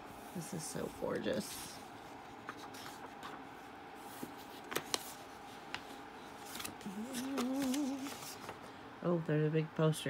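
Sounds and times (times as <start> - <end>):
faint steady hum: 0.0 - 10.0
magazine pages rustling: 0.8 - 8.8
paper crackles: 0.9 - 8.6.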